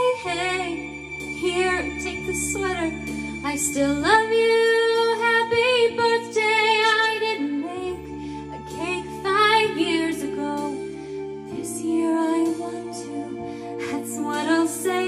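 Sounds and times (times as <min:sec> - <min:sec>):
low sustained accompaniment: 0:00.0 - 0:05.3.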